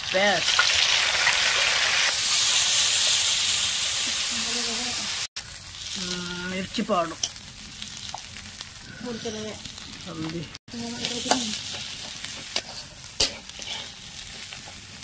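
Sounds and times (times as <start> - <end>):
onion paste sizzling in hot oil: 0.0 - 15.0
metal spatula scraping a pan: 10.8 - 15.0.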